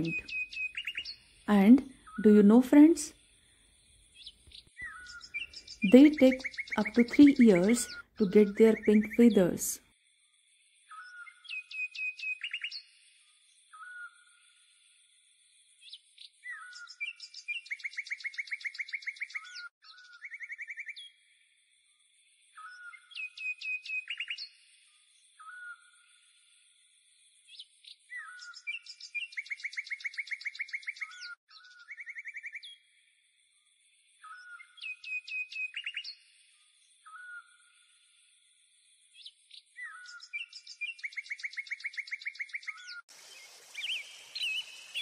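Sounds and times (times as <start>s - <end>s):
songbirds singing: 0.0s - 45.0s
faint high hiss: 43.1s - 45.0s.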